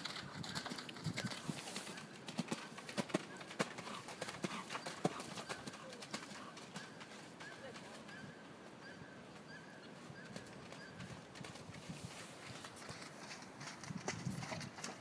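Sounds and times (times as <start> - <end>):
horse hoofbeats cantering: 0.0 - 15.0.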